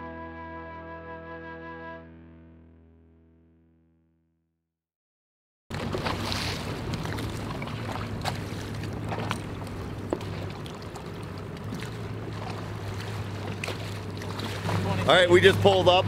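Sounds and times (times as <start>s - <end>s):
choppy water: 5.7s - 16.0s
outboard motor idling: 5.7s - 16.0s
wind: 5.7s - 16.0s.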